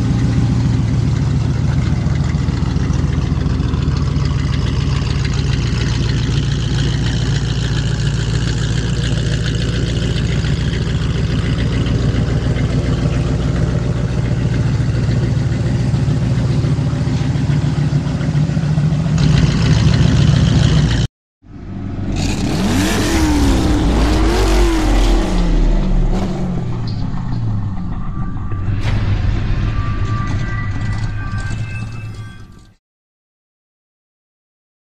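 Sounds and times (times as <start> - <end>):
car engine running: 0.0 - 32.0
swooshing sound effect: 21.5 - 32.8.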